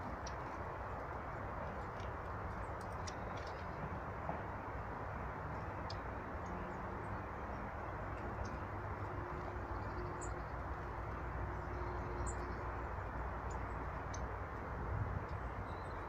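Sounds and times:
small birds chirping: 11.5s - 12.8s.

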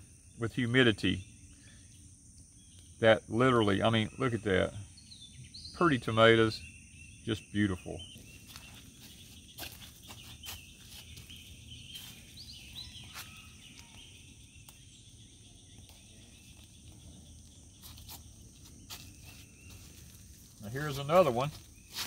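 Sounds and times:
insect chorus: 0.0s - 22.0s
rustles and footsteps in plants: 8.0s - 22.0s.

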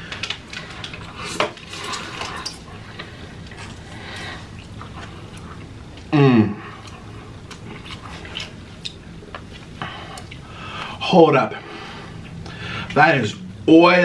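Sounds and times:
person humming with mouth full: 6.1s - 6.6s.

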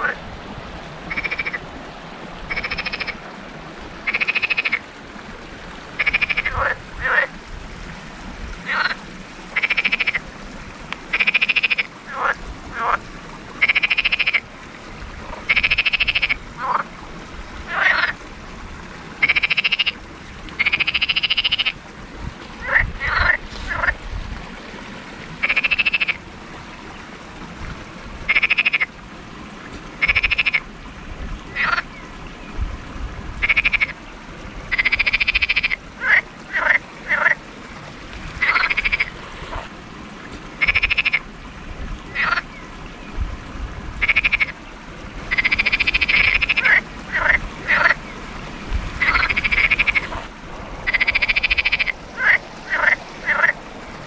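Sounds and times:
frogs croaking: 0.0s - 18.2s, 18.8s - 27.2s, 27.9s - 29.0s, 29.6s - 32.6s, 33.4s - 43.2s, 44.0s - 54.0s
water flowing over stones: 0.0s - 54.0s.

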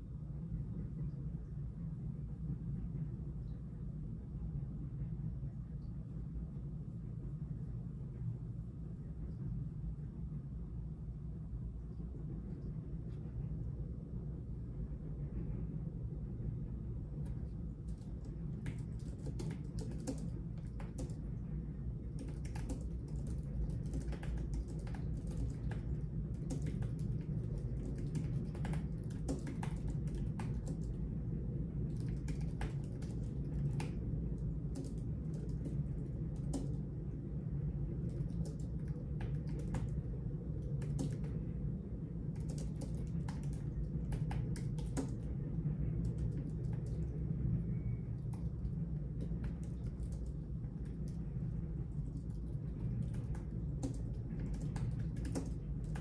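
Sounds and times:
steady low hum: 0.0s - 56.0s
keyboard typing clicks: 17.9s - 21.2s, 22.2s - 31.0s, 31.9s - 34.0s, 34.7s - 36.8s, 38.0s - 40.0s, 40.7s - 41.4s, 42.4s - 45.3s, 48.2s - 51.2s, 52.1s - 56.0s.

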